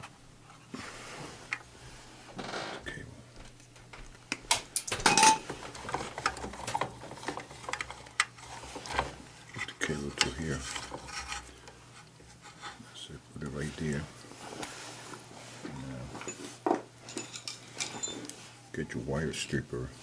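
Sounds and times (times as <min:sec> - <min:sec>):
metal parts clinking and rattling: 0:04.7 - 0:08.3, 0:16.2 - 0:18.4.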